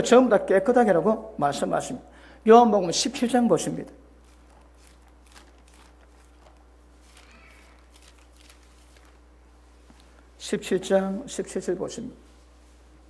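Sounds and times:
steady low hum: 0.0s - 13.0s
pages being turned: 4.2s - 10.2s.

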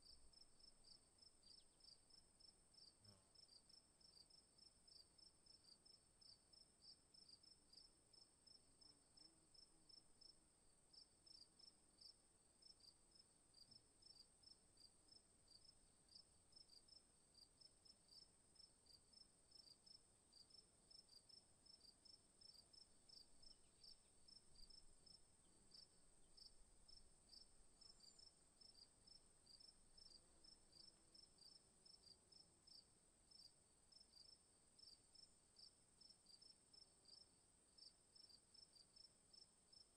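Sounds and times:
insect chirping: 0.0s - 9.3s, 9.9s - 39.9s.

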